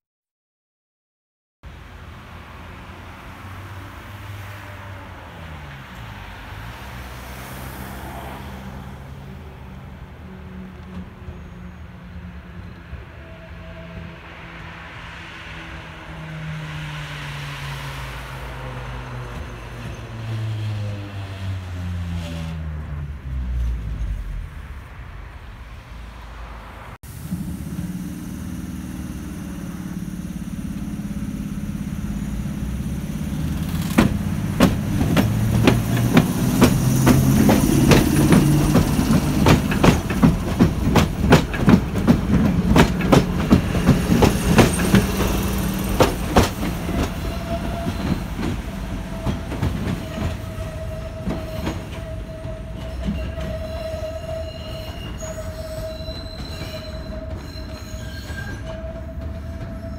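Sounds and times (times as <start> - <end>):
electric train running hum: 27.1 - 59.9
train wheels clicking over rail joints: 27.1 - 59.9.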